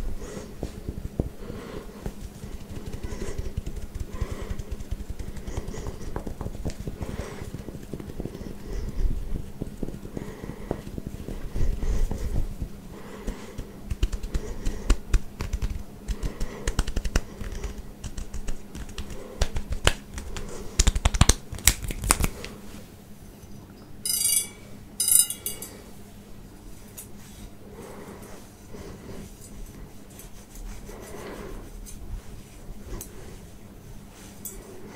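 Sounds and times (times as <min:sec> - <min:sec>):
fingers scratching short hair: 0:00.0 - 0:22.5, 0:28.7 - 0:33.5
metal prongs ringing: 0:24.0 - 0:25.8.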